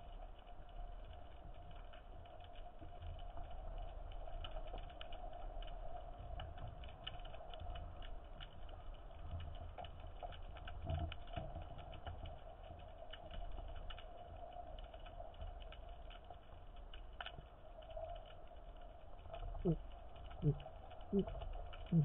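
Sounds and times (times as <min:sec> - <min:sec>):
underwater clicks crackling: 0:01.7 - 0:22.0
low rumble: 0:17.6 - 0:22.0.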